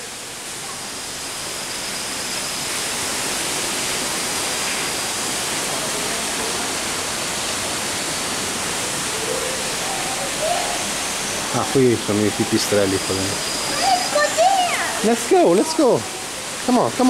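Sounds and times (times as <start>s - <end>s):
rushing water: 0.0s - 17.0s.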